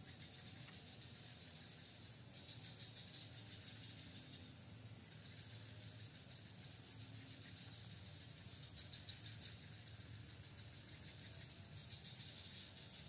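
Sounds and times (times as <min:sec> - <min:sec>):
insects droning: 0:00.0 - 0:13.0.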